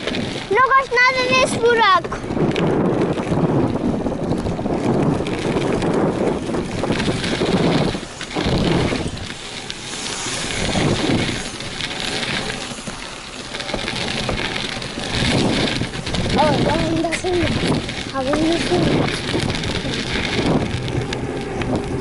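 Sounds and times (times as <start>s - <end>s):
bike tyres rolling on dirt: 0.0s - 22.0s
wind on camera microphone: 0.0s - 22.0s.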